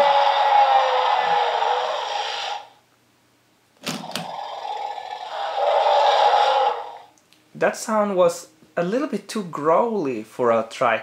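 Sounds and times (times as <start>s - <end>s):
toy dinosaur roar from speaker: 0.0s - 2.8s, 4.0s - 7.1s.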